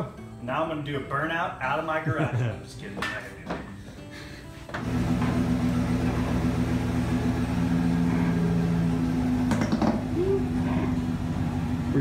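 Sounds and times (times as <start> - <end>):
truck engine idling: 4.8 - 12.0.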